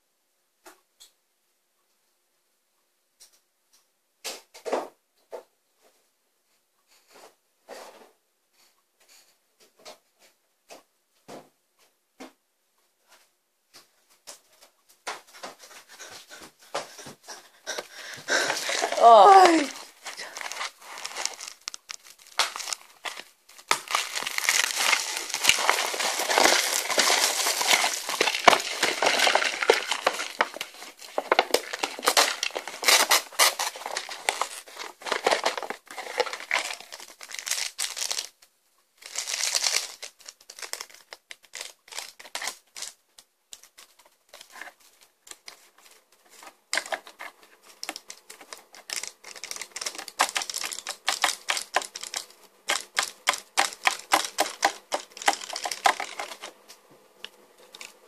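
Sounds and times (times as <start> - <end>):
paper and foil packet rustling: 16.9 - 43.0, 43.6 - 56.6
plastic wrap crinkling and tearing: 17.9 - 43.0, 46.4 - 56.6.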